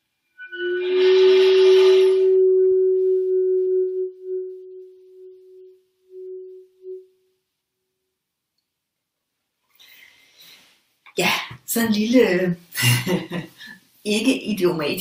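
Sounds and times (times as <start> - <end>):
bamboo flute long low note: 0.3 - 7.3.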